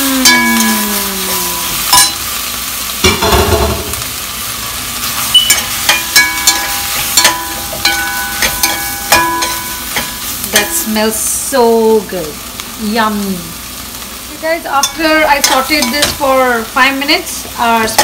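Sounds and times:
sprouts sizzling in butter: 0.0 - 18.0
metal utensil clinking on pot: 1.9 - 2.2, 5.3 - 10.8, 14.8 - 16.3.

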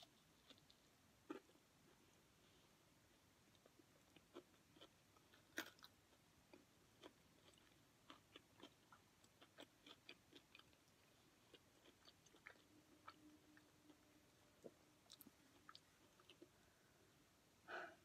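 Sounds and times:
chewing with mouth clicks: 3.6 - 14.0, 14.6 - 16.6.

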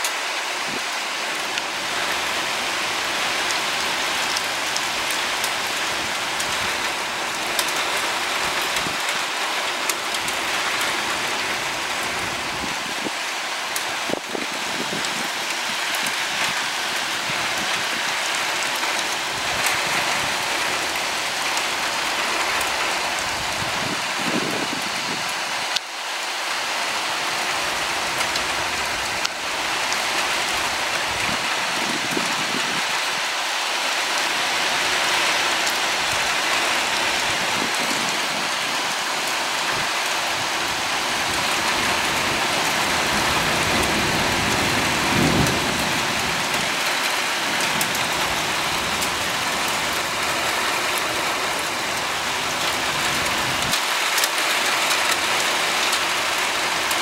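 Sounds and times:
heavy rain pouring: 0.0 - 57.0
low rumbles of thunder: 41.9 - 46.9.

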